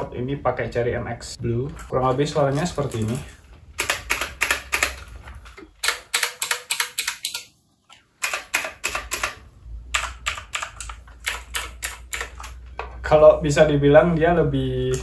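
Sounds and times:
mechanical keyboard clicking: 3.8 - 5.0, 5.8 - 7.5, 8.2 - 12.6.

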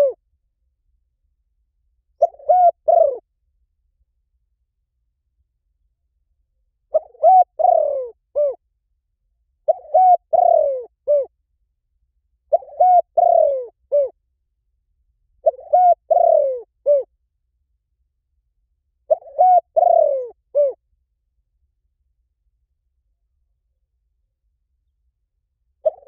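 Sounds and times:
dove cooing: 0.0 - 0.2, 2.2 - 3.2, 6.9 - 8.6, 9.6 - 11.3, 12.5 - 14.2, 15.4 - 17.1, 19.1 - 20.8.

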